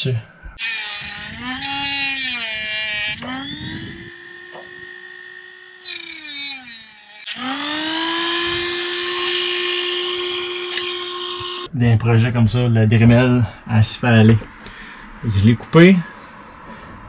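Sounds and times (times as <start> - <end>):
rotary tool cutting plastic: 0.6 - 11.7.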